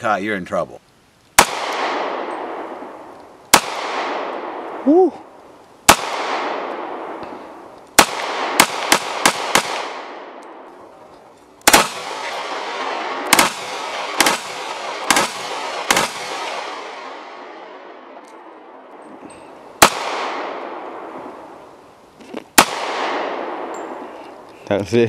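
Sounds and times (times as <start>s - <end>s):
pistol shots echoing: 1.4s - 4.8s, 5.9s - 10.7s, 11.6s - 19.1s, 19.7s - 21.6s, 22.6s - 24.1s.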